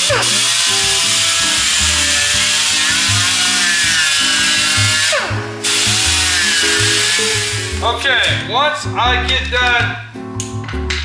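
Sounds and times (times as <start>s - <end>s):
die grinder whining: 0.0s - 8.3s
background music with bass line: 0.0s - 11.0s.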